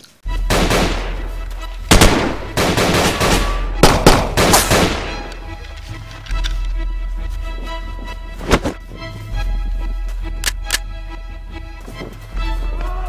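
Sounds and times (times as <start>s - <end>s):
music with low drone: 0.2s - 13.0s
pistol gunshots: 0.5s - 1.2s, 1.9s - 5.3s.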